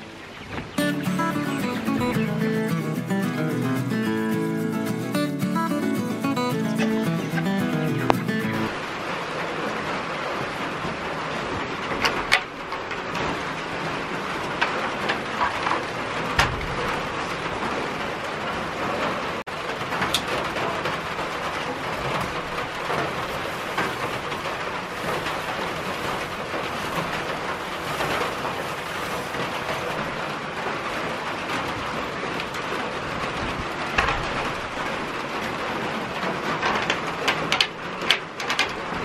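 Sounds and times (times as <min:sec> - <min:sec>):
rain on a metal roof: 0:08.3 - 0:39.0.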